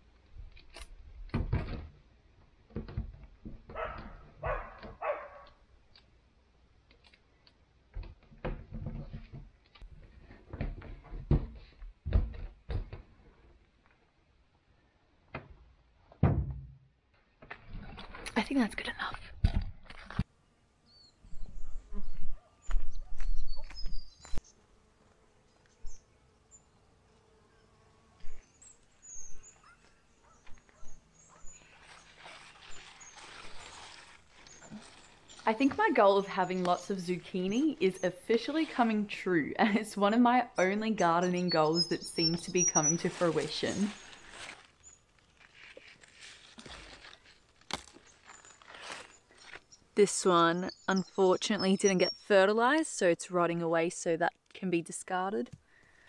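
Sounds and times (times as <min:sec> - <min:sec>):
insect buzzing faintly: 0:21.2 - 0:39.2
tape torn from roll: 0:31.6 - 0:35.5, 0:43.0 - 0:49.7.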